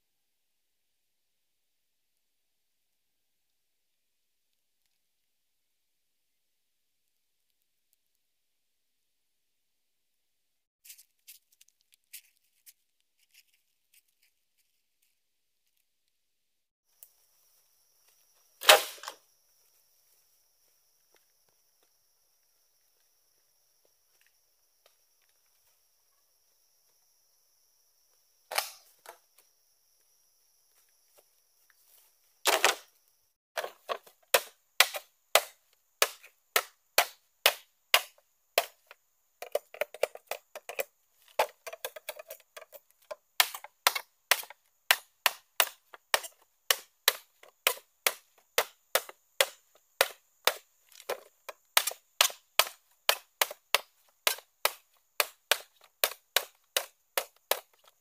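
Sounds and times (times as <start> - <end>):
blade chopping bamboo: 18.6 - 19.2, 32.5 - 32.8, 33.6 - 58.0.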